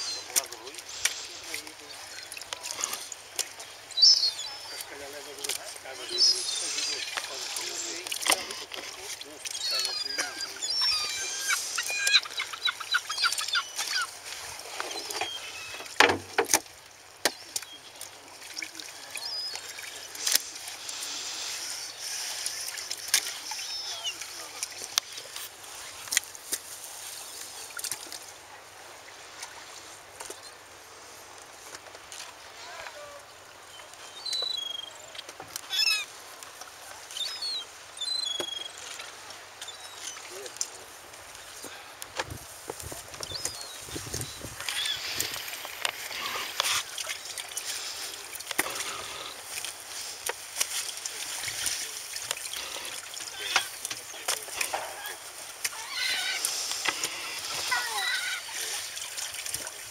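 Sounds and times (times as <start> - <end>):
birds chirping: 0.0 - 16.2, 17.2 - 24.8, 32.6 - 36.1, 37.0 - 40.6, 43.1 - 50.1
gulls calling: 0.0 - 16.4, 17.2 - 24.6, 32.6 - 36.1, 43.2 - 50.1, 51.0 - 59.5
water splashing in a bucket: 4.7 - 21.4, 40.0 - 59.9.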